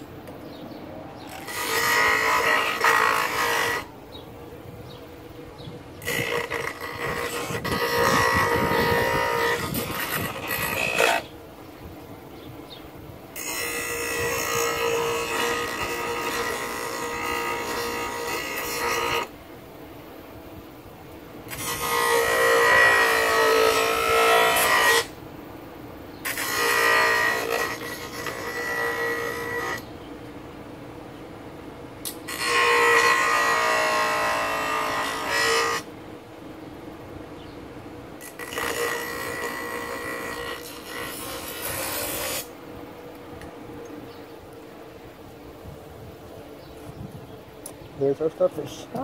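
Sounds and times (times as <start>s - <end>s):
bench grinder grinding wood: 1.2s - 3.9s, 5.7s - 11.3s, 13.4s - 19.3s, 21.5s - 25.2s, 26.2s - 29.9s, 32.0s - 35.9s, 38.2s - 42.6s
grinder running hum: 1.3s - 3.9s, 6.0s - 11.3s, 13.4s - 19.3s, 21.5s - 25.2s, 26.3s - 29.9s, 32.1s - 35.9s, 38.2s - 42.6s.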